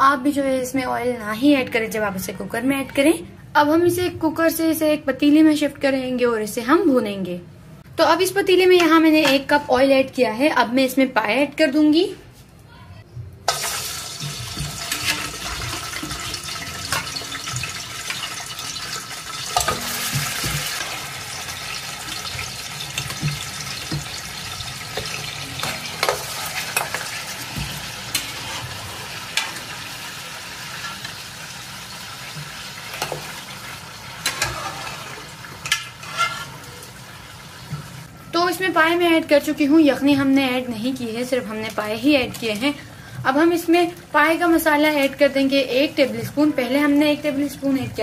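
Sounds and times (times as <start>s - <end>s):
meat sizzling in hot oil: 13.5s - 38.1s.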